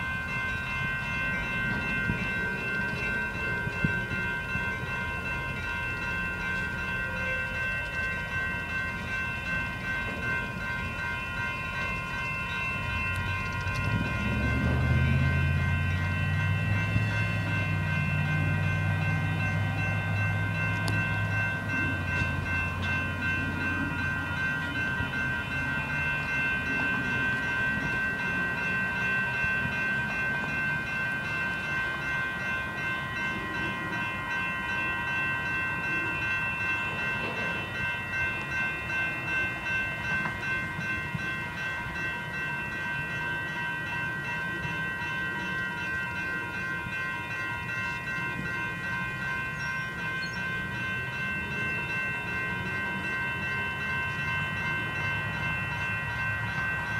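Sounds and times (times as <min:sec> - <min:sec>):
crossing warning bells ringing: 0:00.0 - 0:56.9
freight train rumbling: 0:00.0 - 0:56.9.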